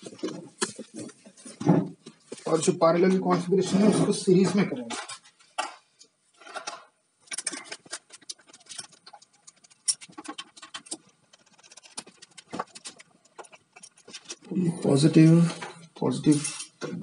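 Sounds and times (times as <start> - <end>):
metal hardware clicks and scrapes: 3.7 - 17.0.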